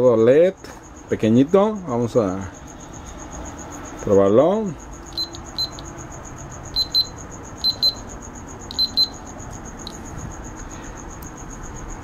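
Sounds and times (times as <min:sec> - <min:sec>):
short high buzzer beeps: 0:06.8 - 0:08.0, 0:08.7 - 0:09.2.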